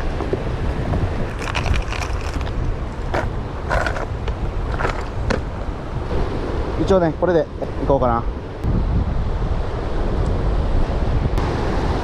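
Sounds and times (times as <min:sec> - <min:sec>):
strong wind buffeting microphone: 0:00.0 - 0:12.0
fishing tackle clicks and rattles: 0:01.3 - 0:02.6.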